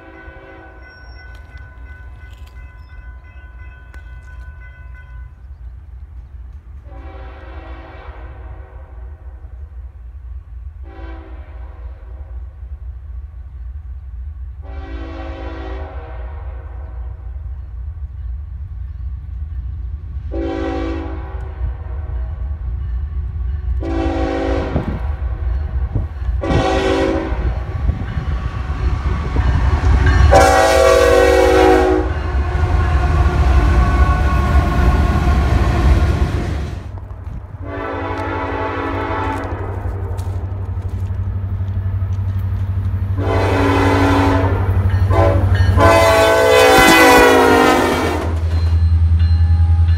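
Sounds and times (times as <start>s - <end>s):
locomotive air horn blasts: 0.0s - 0.9s, 6.8s - 9.3s, 10.8s - 12.4s, 14.6s - 17.1s, 20.3s - 22.2s, 23.8s - 25.2s, 26.4s - 28.6s, 29.2s - 36.4s, 37.6s - 40.4s, 43.2s - 48.4s
train rumble: 0.0s - 49.9s.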